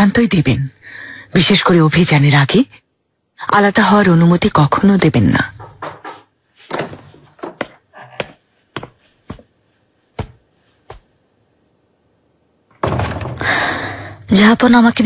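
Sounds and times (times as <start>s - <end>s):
footsteps on a floor: 5.8s - 11.2s.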